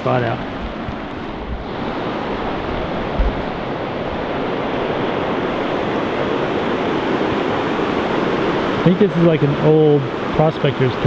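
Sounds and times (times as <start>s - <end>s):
river rushing over rocks: 0.0s - 11.0s
wind thumps on microphone: 0.3s - 8.8s.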